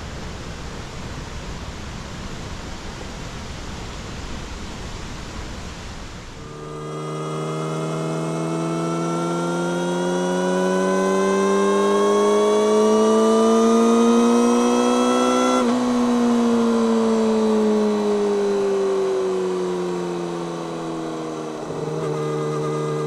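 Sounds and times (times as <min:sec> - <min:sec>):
motorcycle engine revving: 0:06.4 - 0:23.0.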